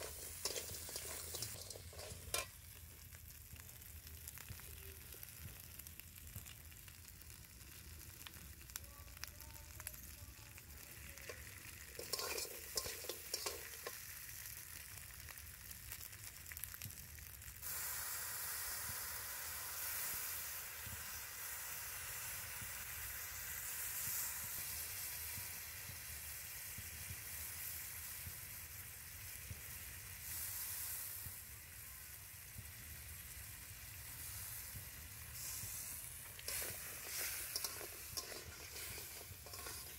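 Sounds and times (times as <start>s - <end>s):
metal spatula clattering: 0.0s - 2.6s, 11.2s - 14.0s, 36.3s - 39.9s
food sizzling in oil in a wok: 0.0s - 39.9s.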